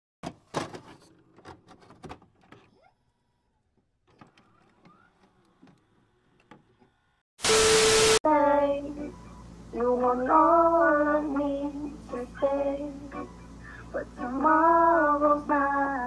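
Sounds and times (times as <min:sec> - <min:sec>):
tv static burst: 0:07.4 - 0:08.2.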